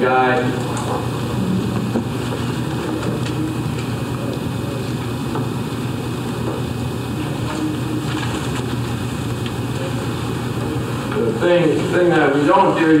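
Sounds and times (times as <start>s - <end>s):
room noise hum and hiss: 0.0s - 13.0s.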